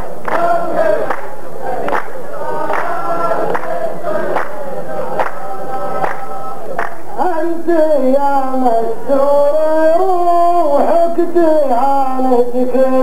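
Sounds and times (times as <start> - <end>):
men singing together: 0.0 - 13.0
slow hand-claps: 0.2 - 7.0.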